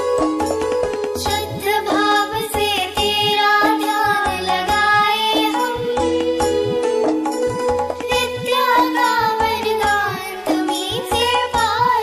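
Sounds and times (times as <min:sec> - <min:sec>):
children singing a prayer: 0:08.1 - 0:12.0.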